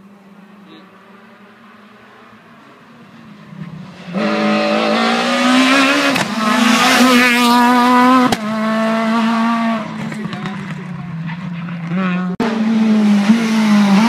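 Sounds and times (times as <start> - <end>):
rally car engine at high revs: 3.5 - 14.0.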